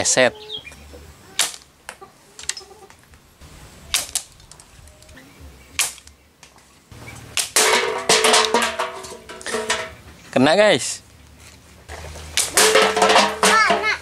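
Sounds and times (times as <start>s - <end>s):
wooden slingshot snapping: 1.4s - 2.6s, 3.9s - 5.2s, 5.8s - 6.6s, 7.4s - 7.7s, 12.4s - 13.7s.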